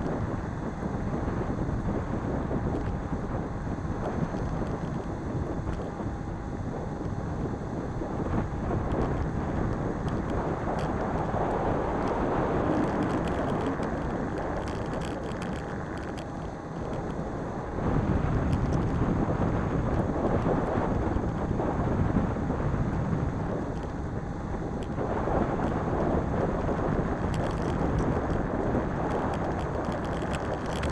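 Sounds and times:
small tyres rolling on asphalt: 0.0 - 30.9
wind on microphone: 0.0 - 30.9
faint ticks and rattles: 2.0 - 3.4, 8.3 - 17.2, 22.9 - 24.1, 24.8 - 30.9.

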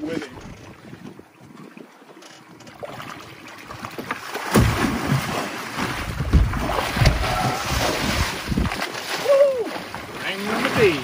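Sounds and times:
water splashing and churning: 0.0 - 11.0
heavy slaps on water: 3.8 - 11.0.

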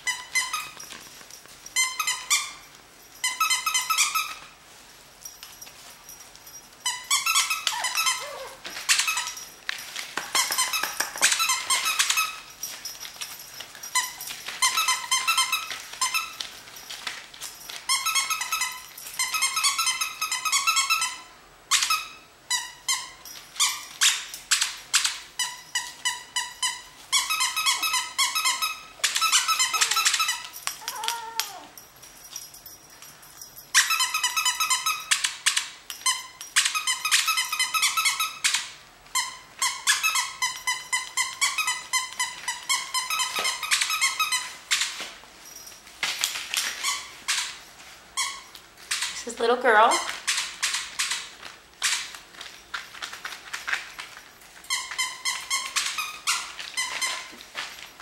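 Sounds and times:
puppy whining: 6.2 - 9.6, 17.9 - 45.6
puppy yapping: 7.3 - 9.3, 29.1 - 31.8.

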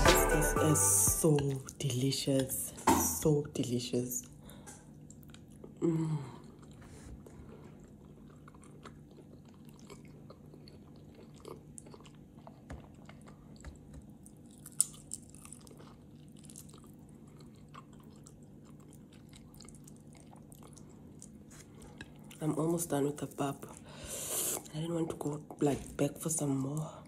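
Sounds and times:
person chewing food: 4.2 - 24.7.

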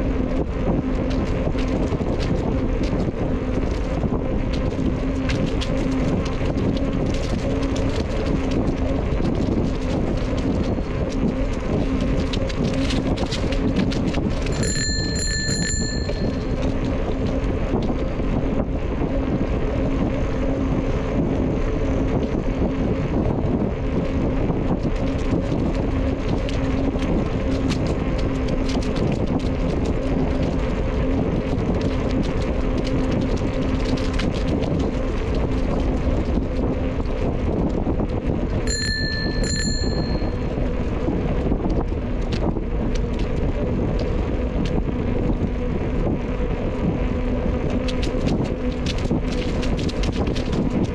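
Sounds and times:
low hum: 0.0 - 50.9
wind rush on microphone: 0.0 - 50.9
bicycle bell ringing: 14.5 - 16.7, 38.7 - 40.6.

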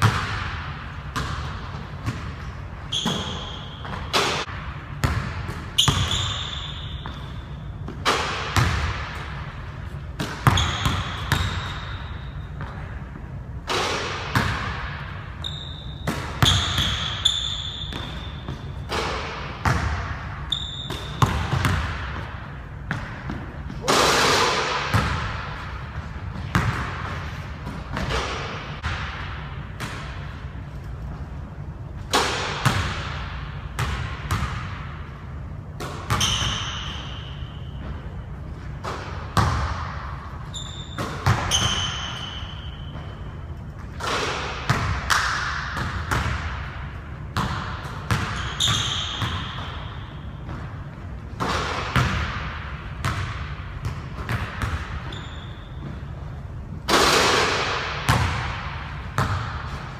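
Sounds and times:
sneakers squeaking on court: 0.0 - 13.3, 14.0 - 23.9, 35.8 - 45.0, 47.4 - 51.2, 53.0 - 56.5.

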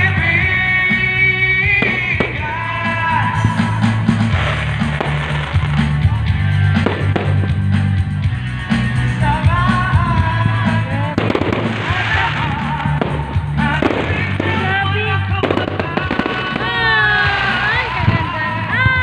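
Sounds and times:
amplified music with heavy bass: 0.0 - 19.0
fireworks bangs: 1.6 - 7.9, 10.9 - 19.0.

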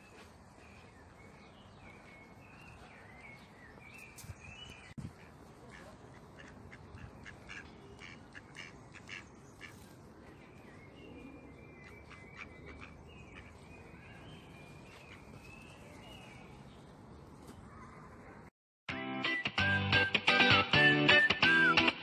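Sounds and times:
birds singing: 0.0 - 18.1
faint duck calls: 5.0 - 9.9.

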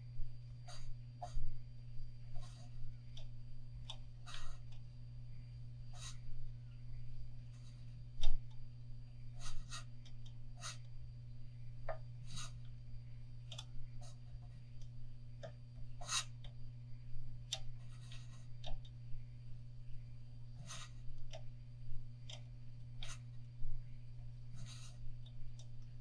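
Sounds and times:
steady low hum: 0.0 - 26.0
thread rubbing on fishing rod: 4.2 - 4.7, 5.9 - 6.4, 9.4 - 10.0, 10.6 - 10.9, 12.2 - 12.7, 16.0 - 16.4, 17.7 - 18.7, 20.6 - 21.3, 24.5 - 25.2.

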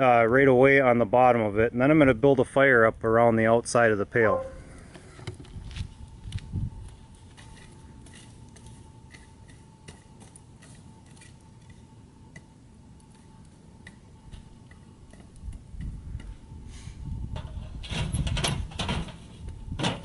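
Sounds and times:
wood fire crackling: 4.7 - 16.8.

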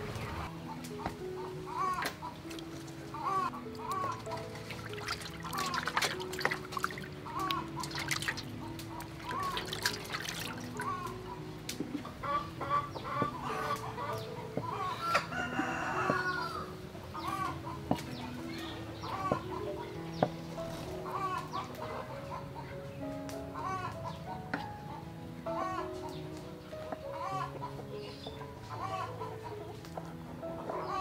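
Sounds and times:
chickens clucking: 0.0 - 31.0
water sloshing in a metal bowl: 3.7 - 11.1.

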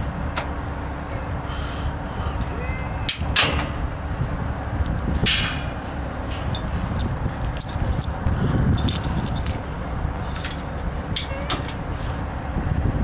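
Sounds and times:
low rumble: 0.0 - 13.0
keys jangling: 6.5 - 11.8.

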